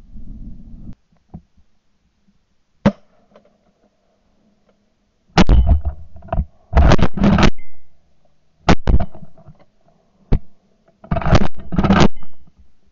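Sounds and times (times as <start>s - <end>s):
sharp gun crack: 2.8s - 3.2s.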